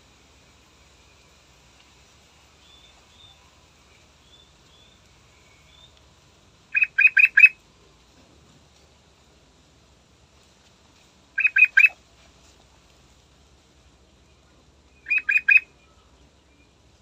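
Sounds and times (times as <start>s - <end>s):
bird calling loud clear notes: 6.7s - 7.6s, 11.4s - 12.0s, 14.9s - 16.0s
faint high bird peeps: 6.7s - 7.6s, 11.4s - 12.0s, 15.0s - 16.0s.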